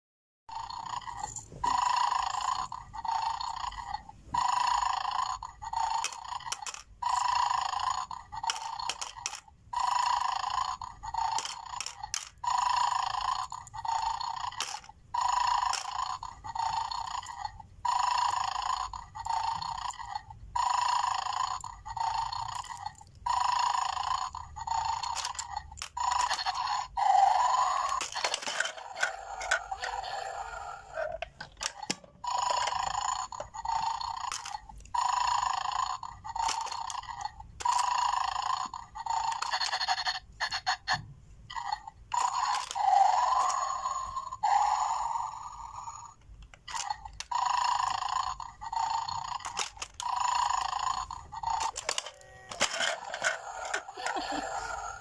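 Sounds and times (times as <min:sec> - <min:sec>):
electronic snoring from toy speaker: 0:00.5 - 0:55.0
toy head clatter: 0:00.6 - 0:55.0.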